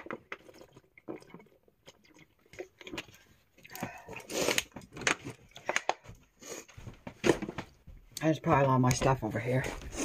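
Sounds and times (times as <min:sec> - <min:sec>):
swallowing water: 0:00.0 - 0:04.8.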